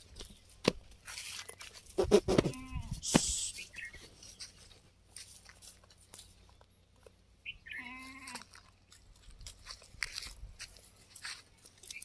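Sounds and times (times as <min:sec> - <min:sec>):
clicking and rustling on straw: 0:00.0 - 0:02.0, 0:04.0 - 0:07.2, 0:08.2 - 0:12.0
goat bleating: 0:02.0 - 0:03.0, 0:07.6 - 0:08.6.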